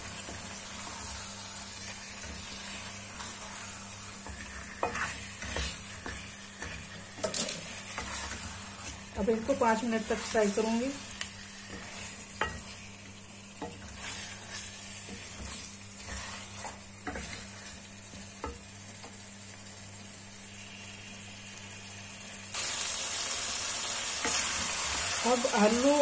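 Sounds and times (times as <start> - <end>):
spatula scraping pan: 0.0 - 12.9, 13.6 - 17.8
food sizzling in oil: 0.0 - 26.0.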